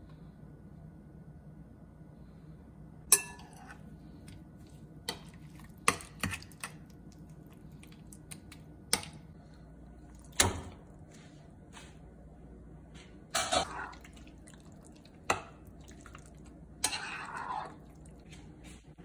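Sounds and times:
metal spoon clinking glass bowl: 3.1s - 3.8s.

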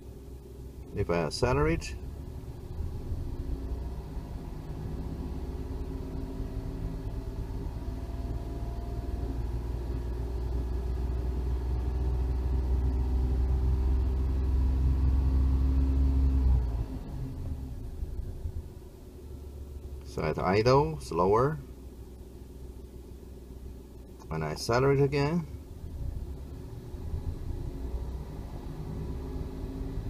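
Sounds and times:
car engine revving: 0.8s - 18.8s, 25.7s - 30.0s.

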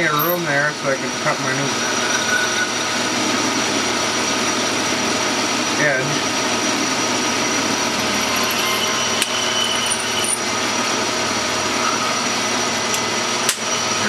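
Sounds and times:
metal lathe running: 0.0s - 14.0s
faint high squeal of cutting: 1.5s - 3.1s, 7.9s - 10.5s, 11.6s - 12.3s.

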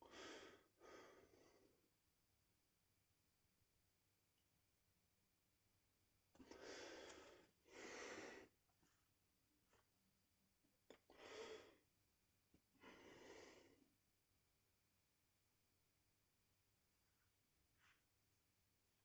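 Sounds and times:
man breathing: 6.4s - 8.6s, 11.0s - 11.8s, 12.8s - 13.8s.

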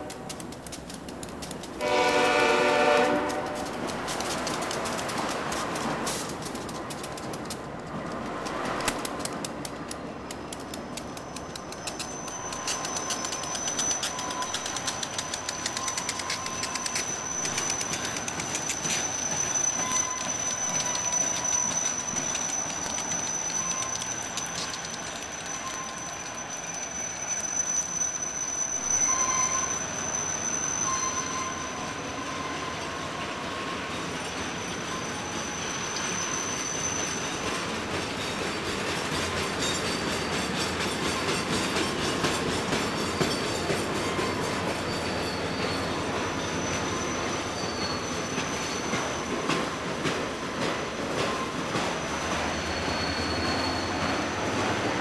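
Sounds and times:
train wheels clicking over rail joints: 0.0s - 31.4s, 33.8s - 55.0s
high-pitched wheel squeal: 10.7s - 33.3s, 33.9s - 49.7s, 50.4s - 55.0s.

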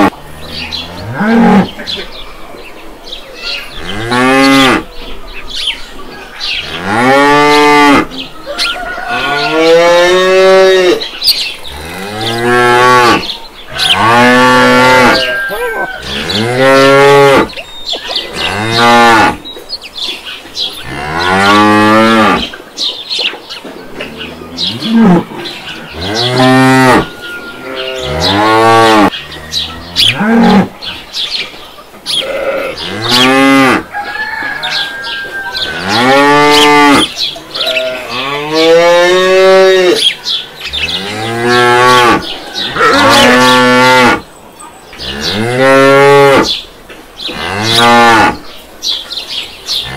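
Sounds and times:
cows mooing: 0.0s - 1.8s, 3.8s - 4.9s, 6.6s - 17.6s, 18.2s - 19.4s, 20.8s - 22.5s, 24.0s - 30.8s, 32.1s - 40.1s, 40.7s - 44.2s, 45.0s - 46.6s, 47.3s - 48.4s.

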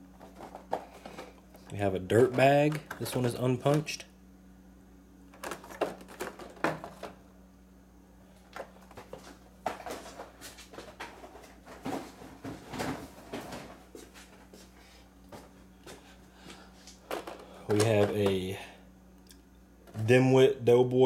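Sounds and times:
plastic packaging rustling and clicking: 0.0s - 3.9s, 5.3s - 7.2s, 8.4s - 13.8s, 16.9s - 18.4s
steady low hum: 0.0s - 21.0s.

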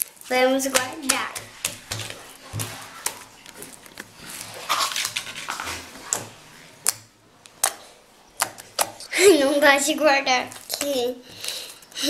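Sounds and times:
slime squelching and clicking: 0.3s - 5.2s, 6.1s - 9.1s.

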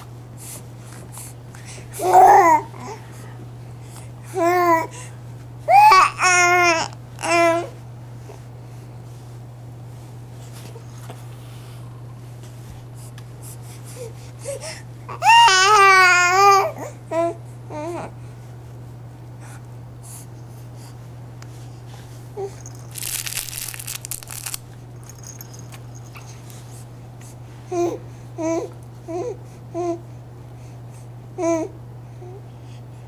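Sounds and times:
baby cooing: 2.0s - 2.7s.

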